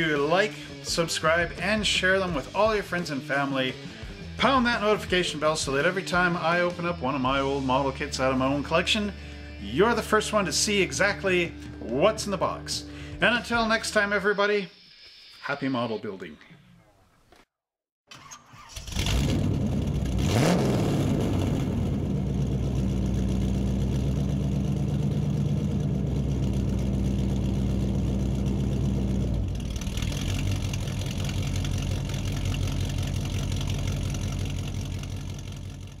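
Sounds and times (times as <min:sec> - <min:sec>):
hiss: 0:14.7 - 0:15.5
car engine revving: 0:18.7 - 0:36.0.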